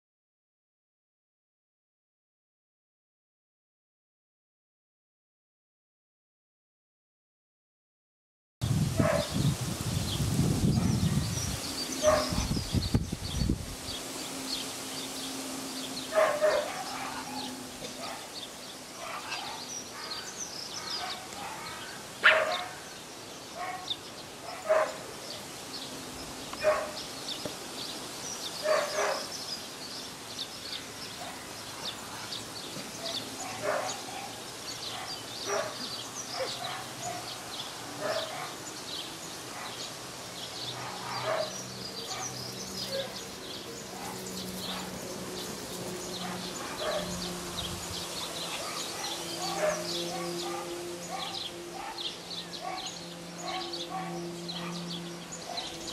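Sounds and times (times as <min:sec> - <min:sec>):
puppy barking: 0:09.0 - 0:09.3, 0:12.0 - 0:12.5, 0:16.1 - 0:18.3, 0:20.8 - 0:22.8, 0:24.5 - 0:25.0, 0:26.6 - 0:27.0, 0:28.6 - 0:29.3, 0:33.0 - 0:34.3, 0:34.9 - 0:37.3, 0:38.0 - 0:38.6, 0:40.8 - 0:43.2, 0:46.2 - 0:47.1, 0:48.5 - 0:54.8.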